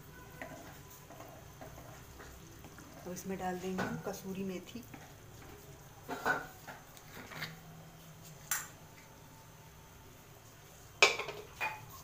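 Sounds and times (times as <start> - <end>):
kitchen handling noises: 6.1 - 7.6, 11.0 - 12.0.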